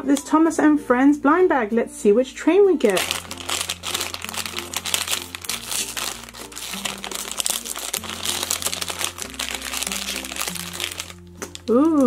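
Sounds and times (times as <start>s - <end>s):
plastic bag tearing and crinkling: 2.8s - 12.0s.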